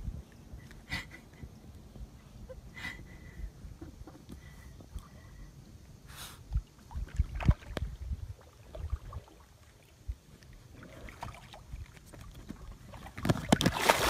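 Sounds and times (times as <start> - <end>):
wind rumble on microphone: 0.0 - 5.8, 6.4 - 10.4.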